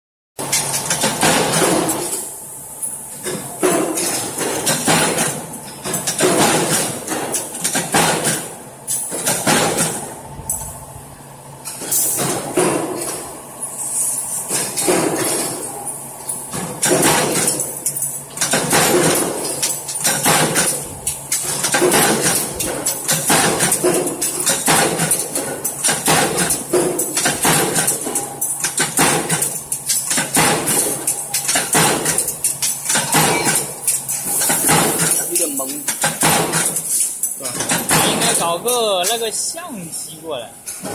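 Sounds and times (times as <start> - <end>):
punch press metallic clanks: 0.4 - 10.7, 11.6 - 13.3, 14.5 - 39.3.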